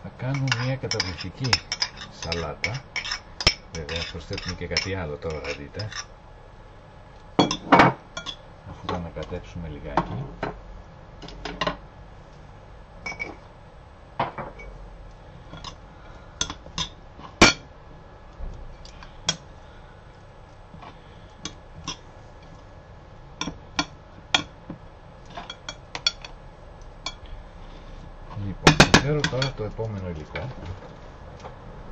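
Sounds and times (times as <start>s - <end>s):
cutlery clinking on ceramic bowl: 0.4s - 6.1s.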